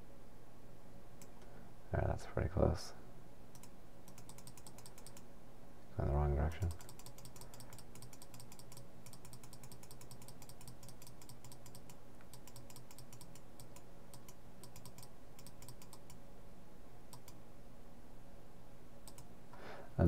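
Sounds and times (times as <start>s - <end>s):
low steady hum: 0.0s - 20.0s
computer mouse clicking rapidly: 3.5s - 5.3s, 6.6s - 16.2s, 17.1s - 17.4s, 19.0s - 19.3s.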